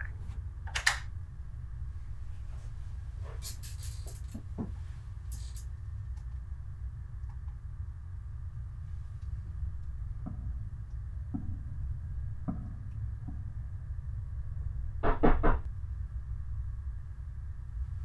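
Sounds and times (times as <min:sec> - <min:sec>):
low room hum: 0:00.0 - 0:18.0
knocking on door: 0:15.0 - 0:15.7.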